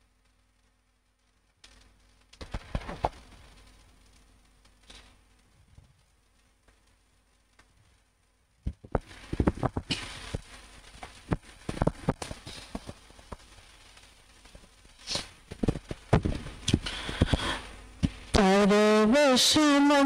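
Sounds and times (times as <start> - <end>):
microphone being handled: 8.6 - 10.5, 15.1 - 18.2.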